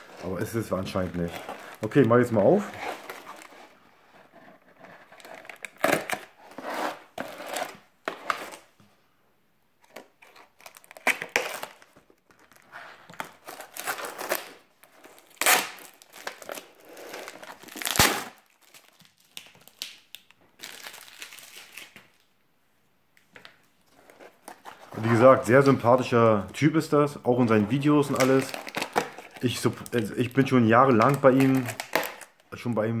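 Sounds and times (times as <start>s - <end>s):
tape tearing: 5.1s - 8.7s, 9.9s - 22.1s, 28.0s - 30.0s, 31.0s - 32.4s.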